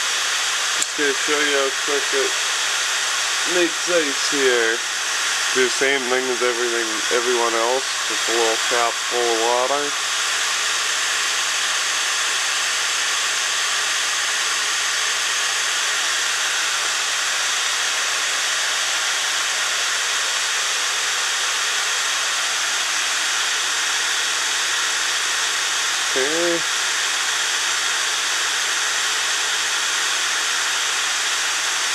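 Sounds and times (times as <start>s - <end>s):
fan whooshing: 0.0s - 10.6s, 26.0s - 26.7s.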